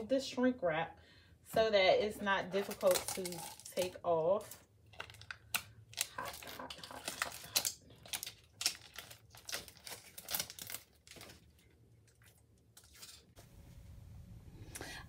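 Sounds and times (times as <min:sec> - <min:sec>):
plastic wrap crinkling and tearing: 0:02.6 - 0:13.4.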